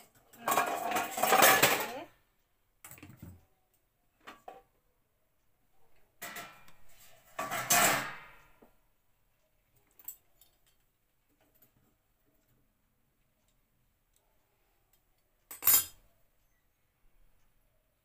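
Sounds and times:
metal utensils clinking: 0.0 - 2.1, 7.4 - 8.2, 15.5 - 16.0
utensils scraping clatter: 0.4 - 2.1.

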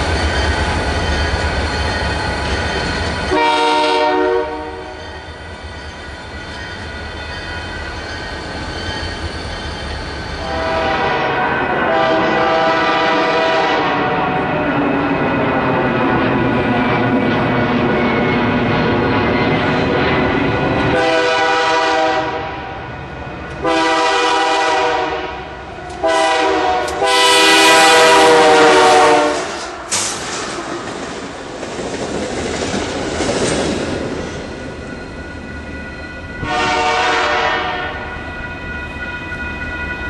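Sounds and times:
locomotive air horn: 3.3 - 5.0, 10.4 - 14.5, 20.9 - 22.8, 23.6 - 29.8, 36.4 - 38.1.

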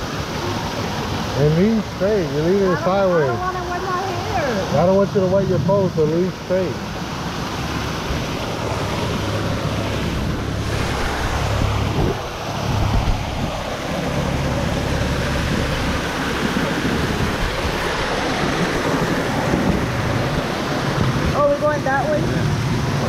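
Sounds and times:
water lapping: 0.0 - 23.0
waterfall pouring into pool: 0.0 - 23.0.

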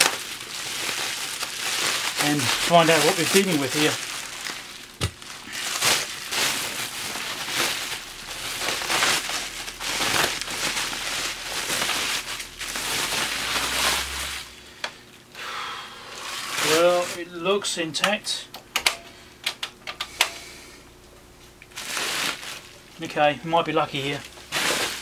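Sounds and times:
bubble wrap crinkling: 0.0 - 14.7, 16.0 - 17.3, 21.5 - 25.0.

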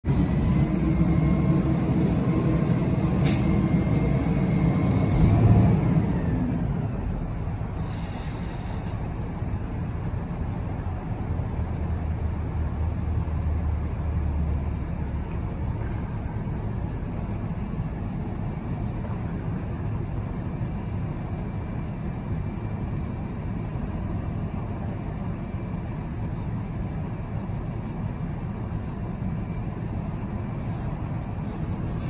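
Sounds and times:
garbage truck engine running: 0.1 - 32.0
hiss of air: 7.7 - 9.1.

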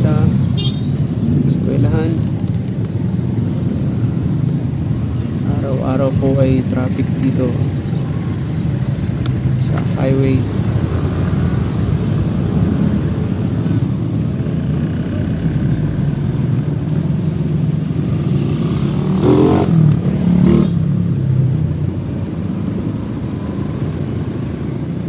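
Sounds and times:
road noise low rumble: 0.0 - 25.0
motorcycle engine revving: 17.9 - 21.3.

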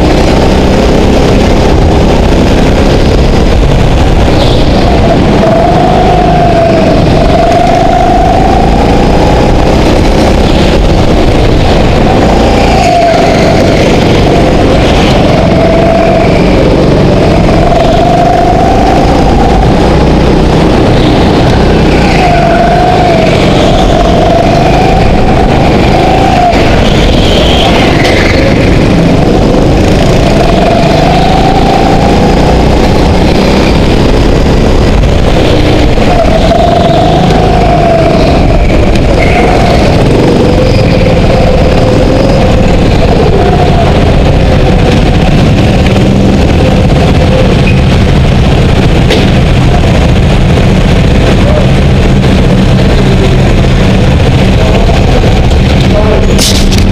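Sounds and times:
go-kart engine accelerating: 0.0 - 56.9.

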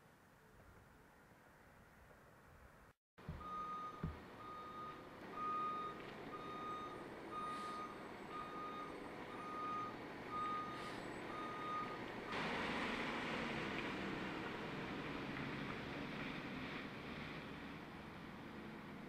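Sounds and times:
backup alarm beeping: 3.3 - 12.0.

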